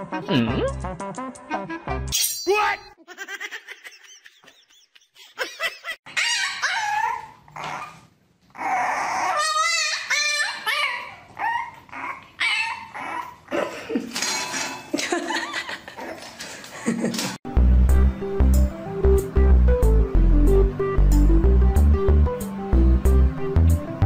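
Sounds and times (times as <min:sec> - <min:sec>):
puppies whining and yipping: 0:06.1 - 0:13.5.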